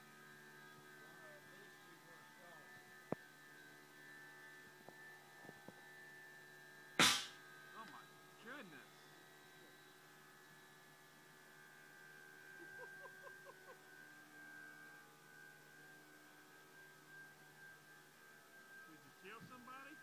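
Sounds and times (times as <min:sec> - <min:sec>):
steady background hum: 0:00.0 - 0:20.0
launcher firing bang: 0:07.0 - 0:07.4.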